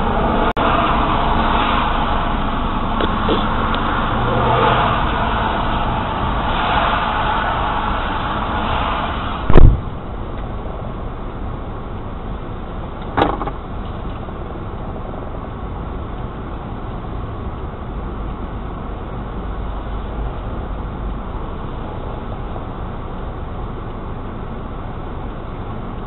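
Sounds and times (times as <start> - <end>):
low rumble of traffic: 0.0 - 26.0
heavy thump: 9.4 - 10.3, 13.1 - 13.6.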